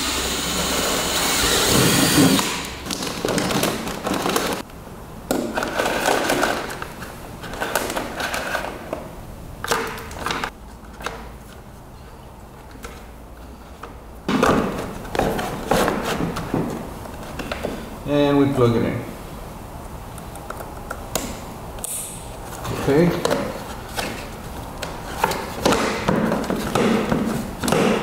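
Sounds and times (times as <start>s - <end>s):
plastic parts handled: 2.8s - 4.6s.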